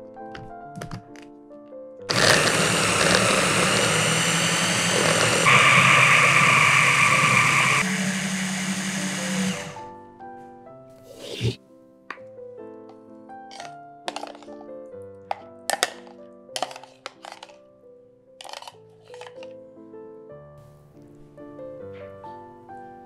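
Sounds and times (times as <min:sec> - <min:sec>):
electric hand blender whirring: 0:02.1 - 0:09.8.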